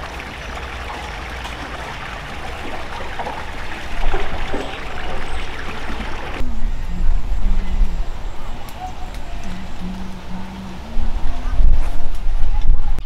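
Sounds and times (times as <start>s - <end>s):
water trickling: 0.0s - 6.4s.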